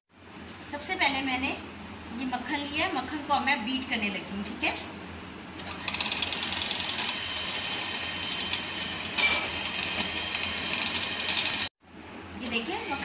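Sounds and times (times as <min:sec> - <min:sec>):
electric hand mixer whining: 0:05.6 - 0:11.7.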